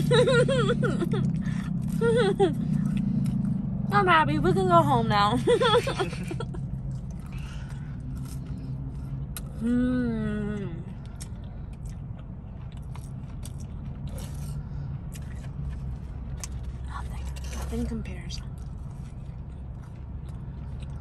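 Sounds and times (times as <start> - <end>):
car cabin hum: 0.0 - 21.0
person humming while eating: 9.5 - 10.9.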